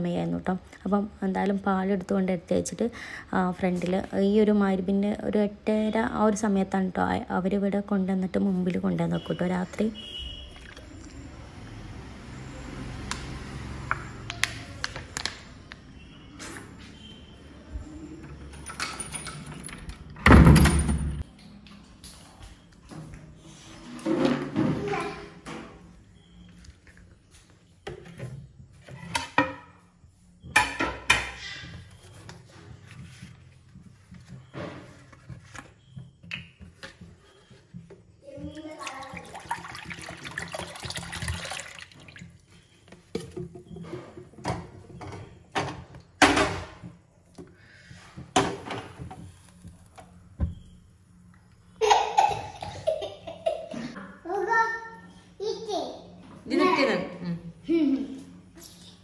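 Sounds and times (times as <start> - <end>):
dishes and utensils clattering: 30.5 - 31.9.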